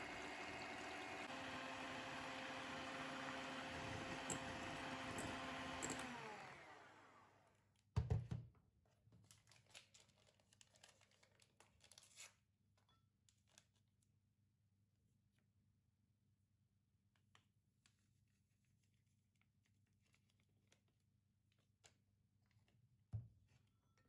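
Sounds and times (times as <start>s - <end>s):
electric hand mixer whisking: 0.0s - 7.4s.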